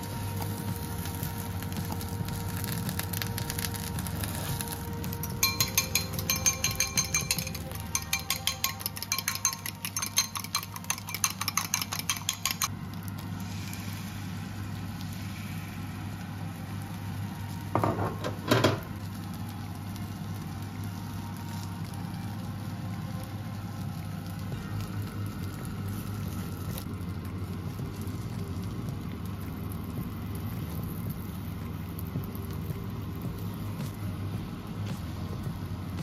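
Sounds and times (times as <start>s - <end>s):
steady low hum: 0.0s - 17.8s, 18.8s - 36.0s
whisk clinking in glass bowl: 5.3s - 12.7s.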